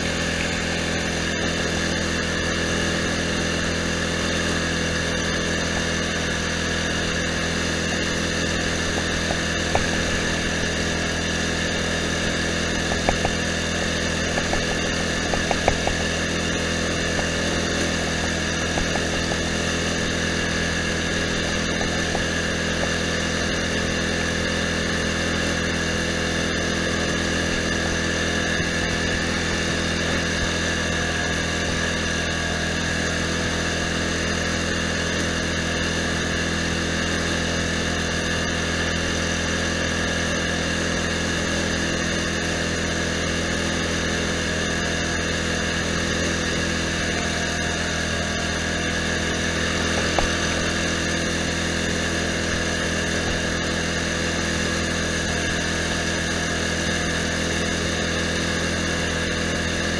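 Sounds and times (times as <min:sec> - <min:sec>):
lawn tractor engine running: 0:00.0 - 0:59.9.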